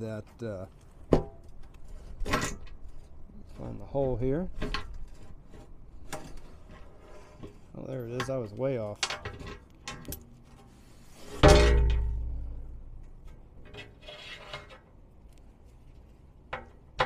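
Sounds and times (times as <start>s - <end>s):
metal plate clicks and scrapes: 1.1s - 15.0s
loud metallic clank: 11.3s - 13.1s.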